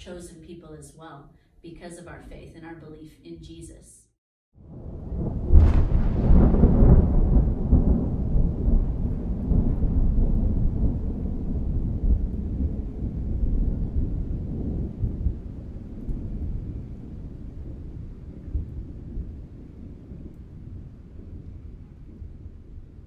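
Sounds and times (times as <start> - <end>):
thunderclap crack and rumble: 4.6 - 23.0.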